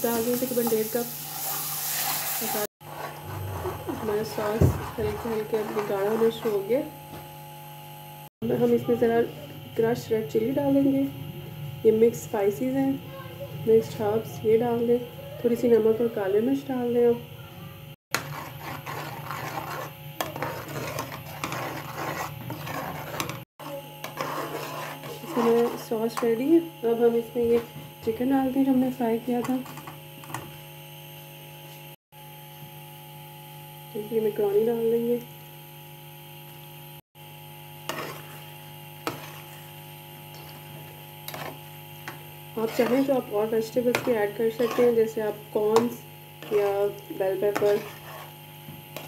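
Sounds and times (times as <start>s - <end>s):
spoon scraping a steel pan: 0.4s - 6.8s, 18.2s - 23.4s, 24.0s - 26.4s, 37.8s - 39.7s, 42.6s - 48.4s
electrical hum: 2.4s - 49.0s.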